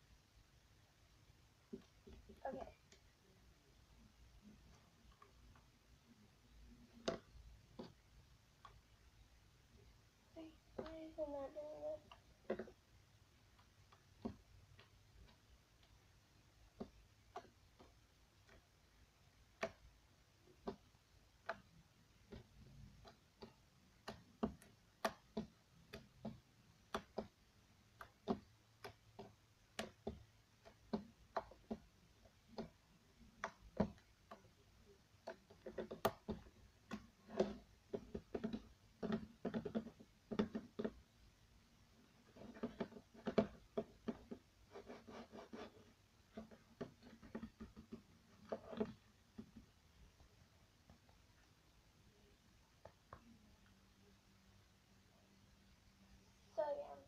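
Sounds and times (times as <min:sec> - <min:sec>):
slime squishing with sticky clicks: 0:11.9 - 0:44.5.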